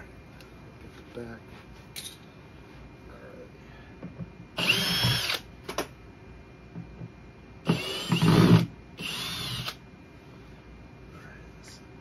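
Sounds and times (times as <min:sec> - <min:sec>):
power drill whine: 0:04.6 - 0:05.4, 0:07.6 - 0:09.8.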